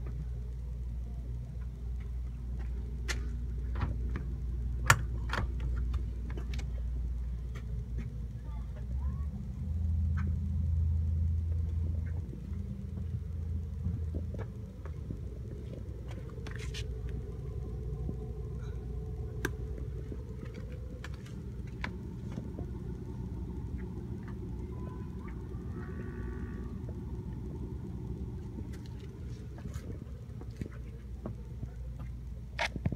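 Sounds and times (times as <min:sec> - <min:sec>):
electric air pump humming: 0:15.4 - 0:30.9.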